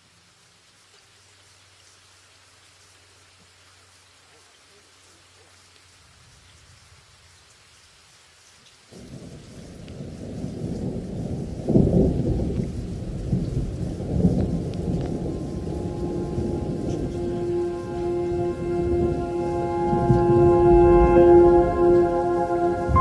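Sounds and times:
light rain: 0.0 - 23.0
thunder rumbling: 8.9 - 23.0
held musical tones: 14.7 - 23.0.

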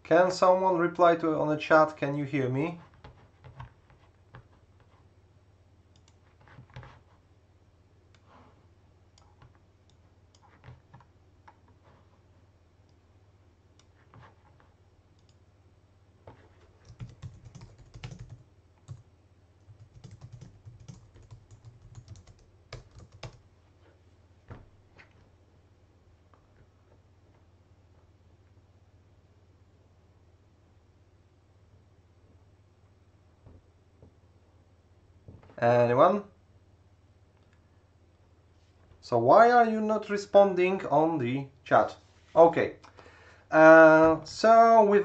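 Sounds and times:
typing on computer keyboard: 16.7 - 19.0, 19.6 - 23.4.

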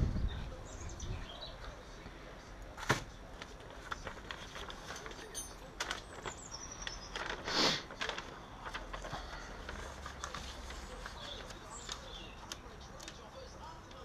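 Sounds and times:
paper rustle: 2.7 - 14.0
bird chirping: 6.0 - 7.3.

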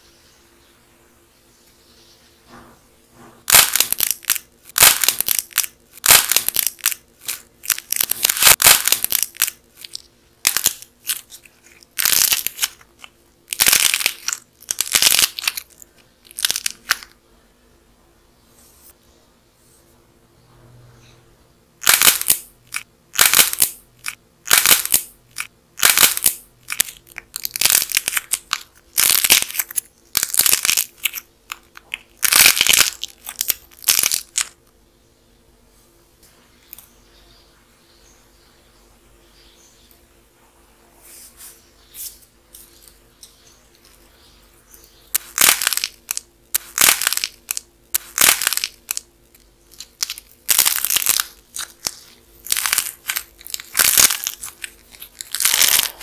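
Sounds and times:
dried clay cracking and crunching: 3.5 - 17.2, 21.8 - 34.6, 44.7 - 56.0.

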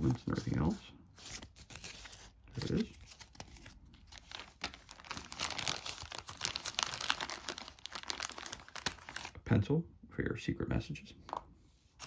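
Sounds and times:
plastic bag crinkling: 2.6 - 9.4.

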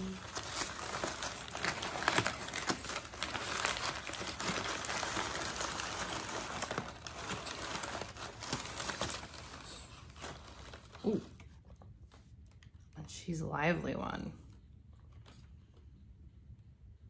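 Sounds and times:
packing paper rustling: 0.0 - 12.5.

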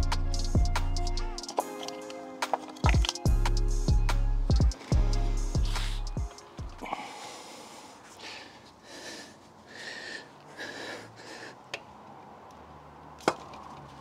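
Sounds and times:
man breathing heavily with strain: 5.5 - 12.0.

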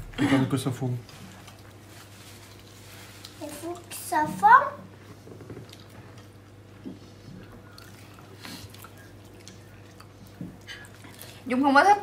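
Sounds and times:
low steady hum: 0.0 - 12.0
short rustles of hands and food: 1.2 - 3.7.

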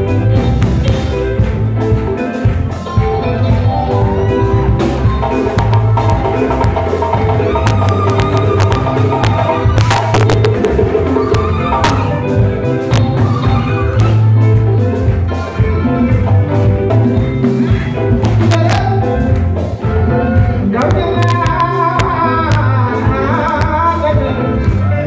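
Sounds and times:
live band playing: 0.0 - 25.0
lead voice singing: 6.3 - 25.0.

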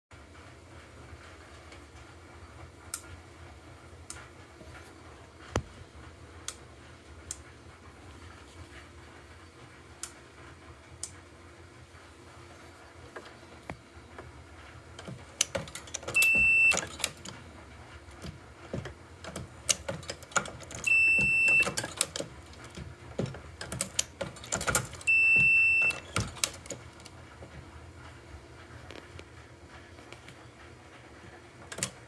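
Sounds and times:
reloading press clacking: 15.0 - 17.5, 18.1 - 27.1
high electronic beep: 16.2 - 16.8, 20.9 - 21.8, 25.1 - 26.0.

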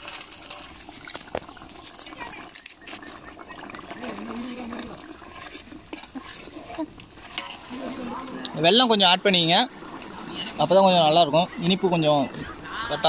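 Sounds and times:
metal ladle stirring: 0.0 - 9.3.

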